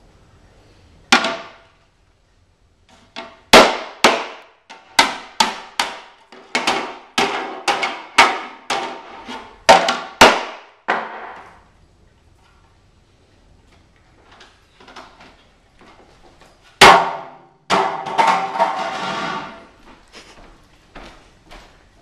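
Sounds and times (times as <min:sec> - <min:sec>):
hammer knocking plastic tray: 0:03.2 - 0:09.0.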